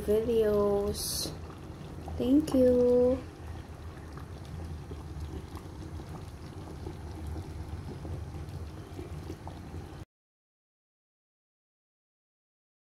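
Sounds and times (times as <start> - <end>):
kitchen background rumble: 0.0 - 10.0.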